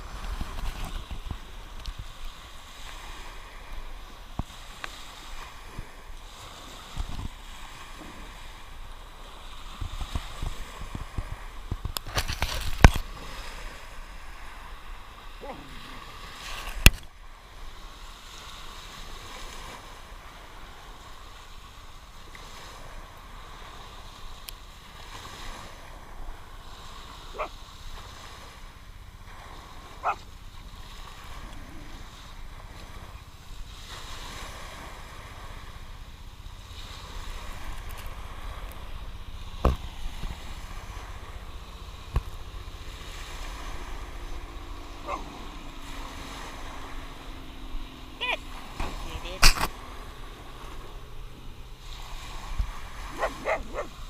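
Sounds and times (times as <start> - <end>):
small waves washing up beach: 0.0 - 54.0.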